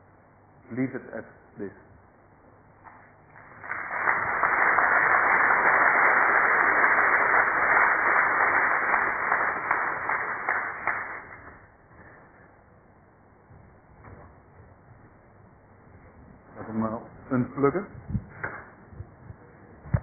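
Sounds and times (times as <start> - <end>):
audience applauding: 3.4 - 11.5.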